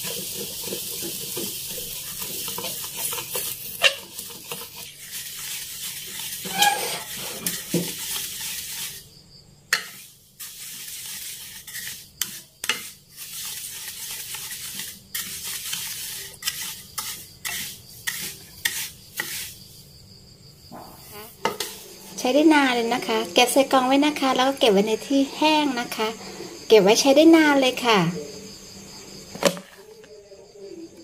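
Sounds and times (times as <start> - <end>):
spatula scraping seeds in pan: 0.0 - 19.8, 20.9 - 25.2
seeds hissing and crackling: 0.0 - 19.9, 21.0 - 23.5.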